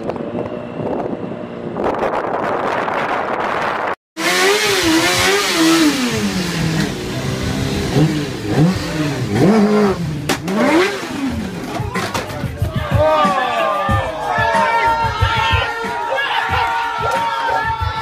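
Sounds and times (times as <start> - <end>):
motorcycle engine revving: 0.2 - 12.4.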